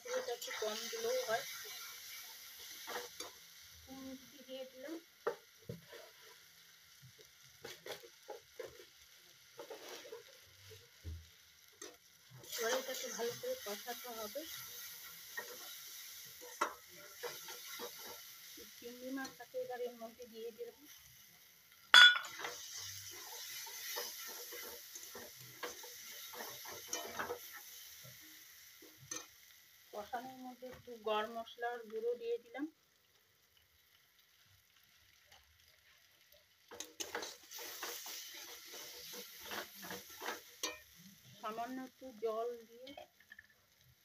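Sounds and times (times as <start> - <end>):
faint sizzle: 0.0 - 44.0
masala frying pops and spatters: 0.0 - 44.0
wooden spatula scraping metal pan: 5.7 - 6.4, 9.6 - 10.3, 36.8 - 40.8.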